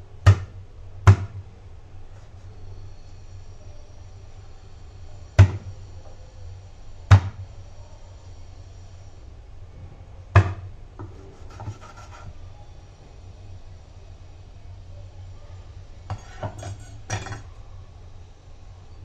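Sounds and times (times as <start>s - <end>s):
scraping: 16.1s - 17.5s.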